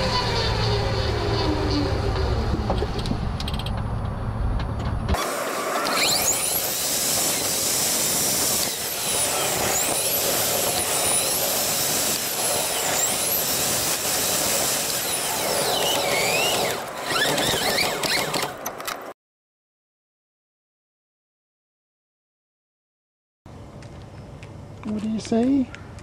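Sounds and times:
thin whine sliding in pitch: 0:00.0 - 0:03.1
car engine tyre and wind rush: 0:00.0 - 0:19.1.

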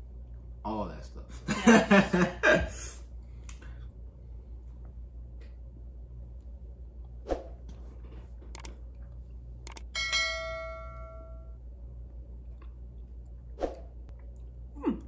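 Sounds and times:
bright bell ring: 0:09.9 - 0:11.6.

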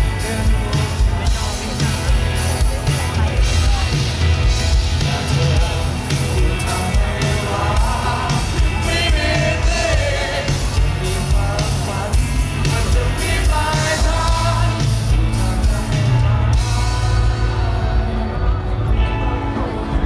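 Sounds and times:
man singing: 0:00.0 - 0:02.2, 0:04.8 - 0:18.5
bass guitar: 0:00.0 - 0:20.0
drums: 0:00.0 - 0:20.0
electric guitar: 0:00.0 - 0:20.0.

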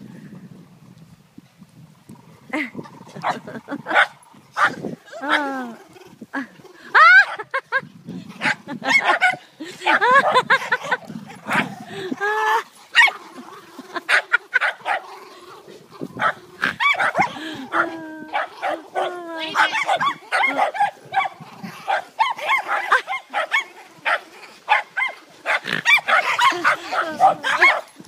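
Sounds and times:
dogs barking and yipping: 0:03.1 - 0:05.5, 0:06.9 - 0:07.8, 0:08.4 - 0:15.1, 0:16.0 - 0:28.0.

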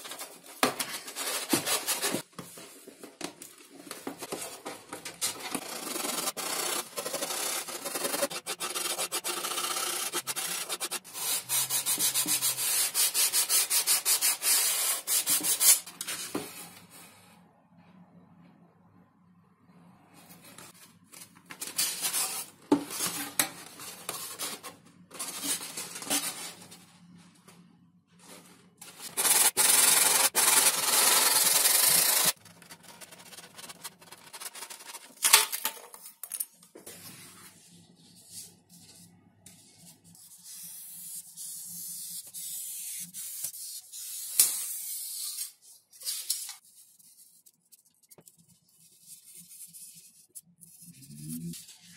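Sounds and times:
foam parts rubbing and scraping: 0:28.2 - 0:35.2.

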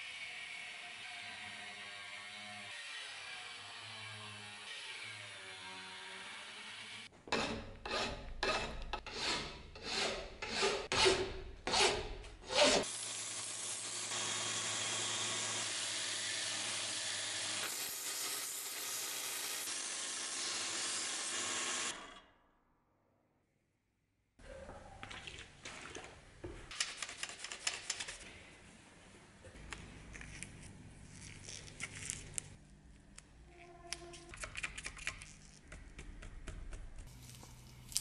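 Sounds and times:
angle grinder cutting metal: 0:12.5 - 0:22.2
belt grinder running: 0:12.8 - 0:22.1.

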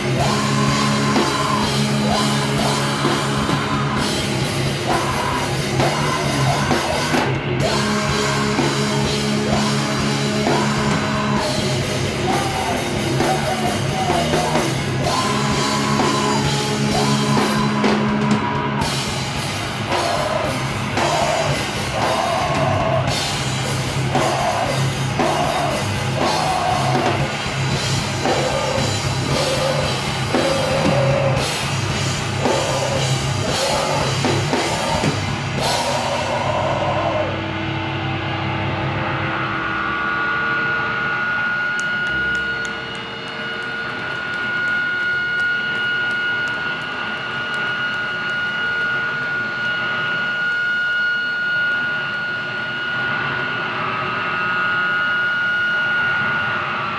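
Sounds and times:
drum kit with crashing cymbals: 0:00.0 - 0:37.2
amp noise: 0:00.0 - 0:56.9
distorted bass and guitar: 0:00.0 - 0:56.9
shouted vocals: 0:19.8 - 0:23.2, 0:23.9 - 0:27.4, 0:32.4 - 0:37.4.

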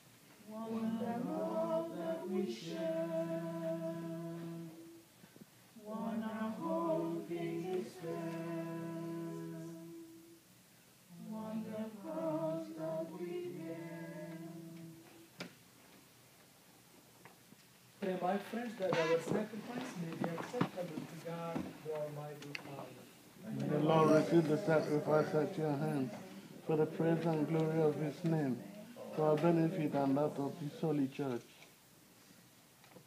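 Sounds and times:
voices singing a hymn: 0:00.4 - 0:10.5, 0:11.1 - 0:15.5, 0:23.4 - 0:31.4.

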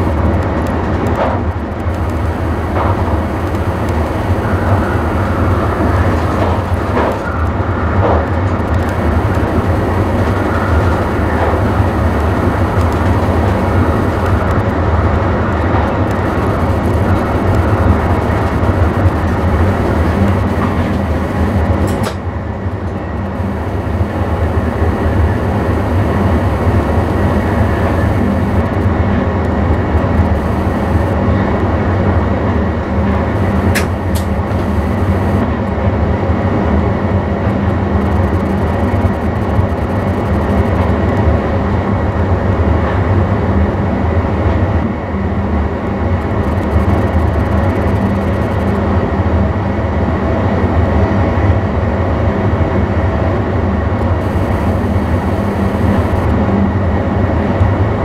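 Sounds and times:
electric train running hum: 0:00.0 - 0:31.5, 0:32.7 - 0:35.6, 0:53.8 - 0:57.9
sharp click: 0:16.0 - 0:22.2, 0:33.4 - 0:35.4.

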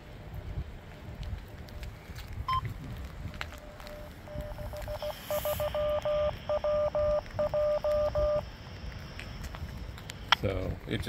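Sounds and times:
morse code beeps: 0:02.5 - 0:02.7, 0:03.6 - 0:08.5.

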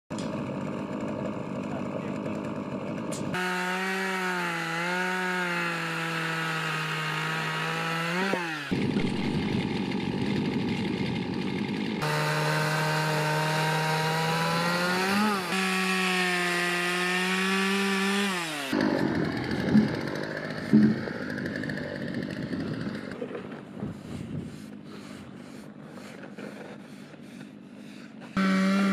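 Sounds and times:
chainsaw cutting timber: 0:00.1 - 0:28.9
sharp knocks: 0:20.6 - 0:21.2.

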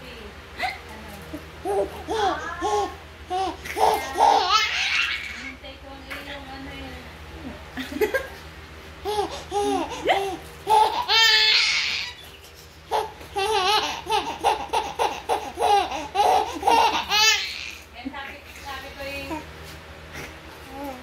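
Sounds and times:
baby giggling: 0:01.6 - 0:05.5, 0:09.0 - 0:12.3, 0:12.9 - 0:17.7
baby squealing: 0:09.1 - 0:17.8.

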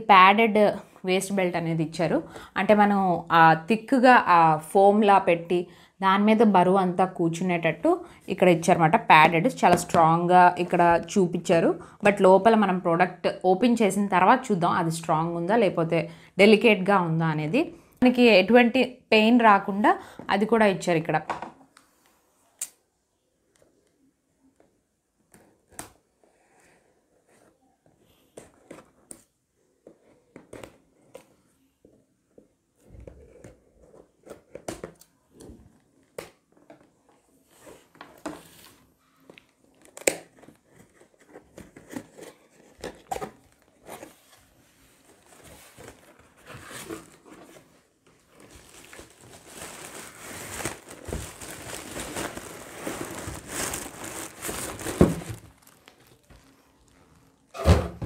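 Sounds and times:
cardboard flaps crinkling: 0:39.8 - 0:57.6.

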